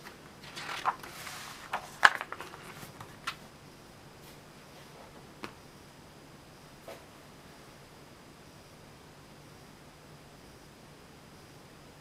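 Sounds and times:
paper crackles and taps: 0.0 - 3.4
paper page turning: 0.4 - 3.4.

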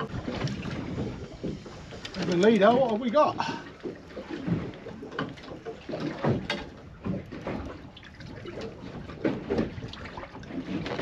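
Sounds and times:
water lapping against boat hull: 0.0 - 11.0
knocks on boat: 4.4 - 7.7.

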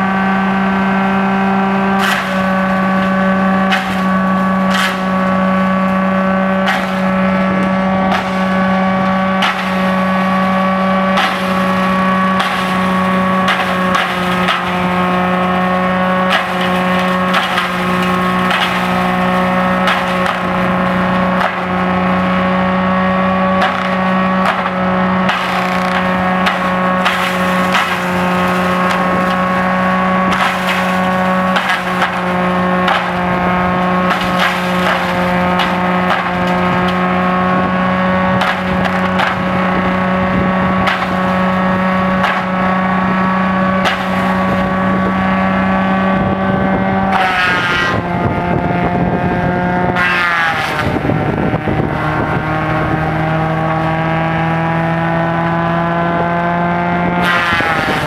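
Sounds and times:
diesel tractor engine: 0.0 - 58.0
palm fronds cracking and snapping: 2.0 - 21.9, 23.6 - 37.2, 38.1 - 39.8, 40.8 - 42.7, 43.8 - 44.7, 57.2 - 58.0.

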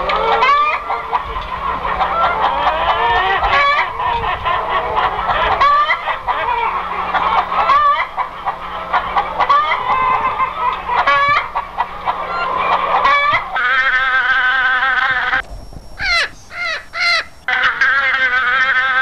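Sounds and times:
loud fowl call: 0.0 - 15.4, 16.0 - 19.0
chickens clucking: 0.0 - 19.0.

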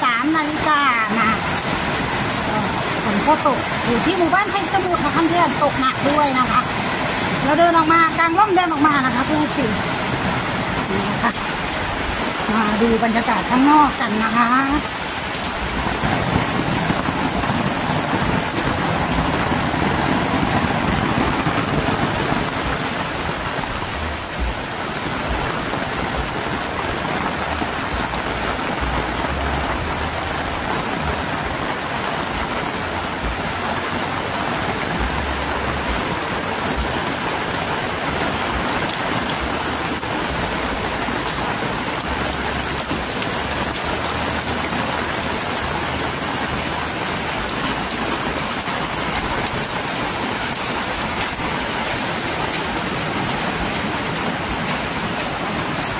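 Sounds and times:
heavy rain on roofs and ground: 0.0 - 55.9
low rumbles: 8.8 - 55.9.

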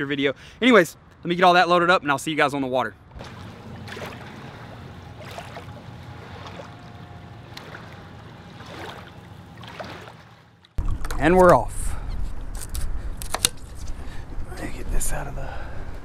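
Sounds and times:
water trickling and splashing: 3.1 - 11.4.

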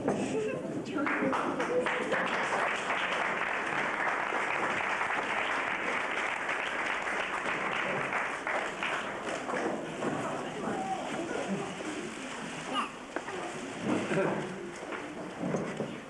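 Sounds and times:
crowd applauding: 1.0 - 11.1.

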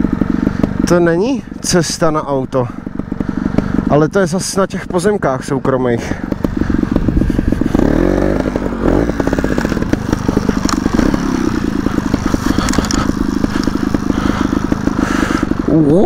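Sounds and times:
two-stroke motorcycle engine: 0.0 - 16.0.

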